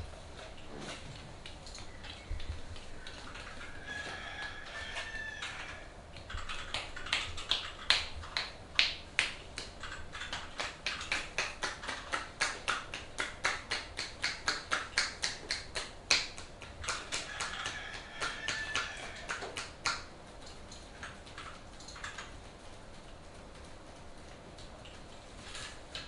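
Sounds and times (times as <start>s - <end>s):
hands slapping an arm: 6.2s - 20.1s.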